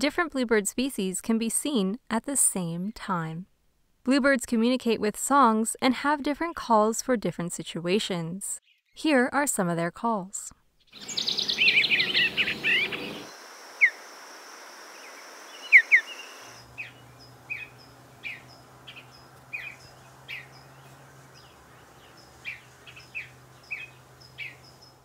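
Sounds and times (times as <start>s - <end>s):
birds calling: 10.9s - 14.1s, 14.9s - 25.0s
faint low hum: 16.5s - 25.0s.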